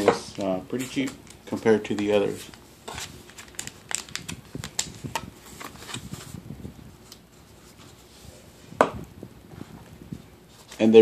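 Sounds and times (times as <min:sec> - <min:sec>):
cardboard packaging rustling: 0:00.0 - 0:08.4.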